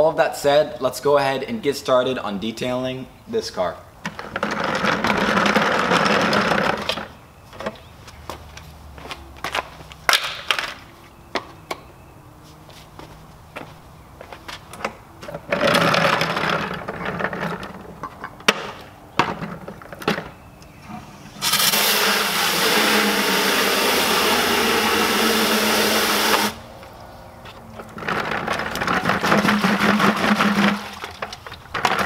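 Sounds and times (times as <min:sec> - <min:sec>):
clicks and knocks: 0:14.7 - 0:20.3
loud burst of noise: 0:21.1 - 0:26.6
water from hose into bucket: 0:21.2 - 0:26.6, 0:28.0 - 0:32.0.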